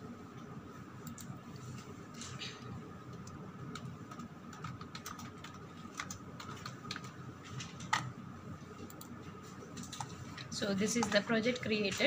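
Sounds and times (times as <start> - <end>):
keyboard typing: 3.1 - 8.1.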